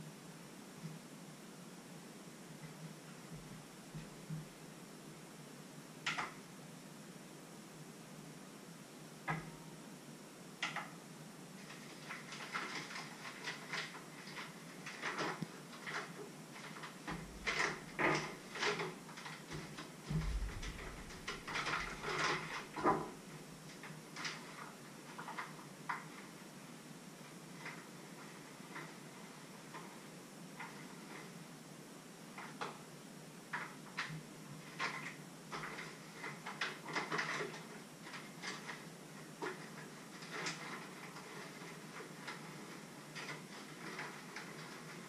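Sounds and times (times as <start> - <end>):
dull bumps: 20.1 - 21.3.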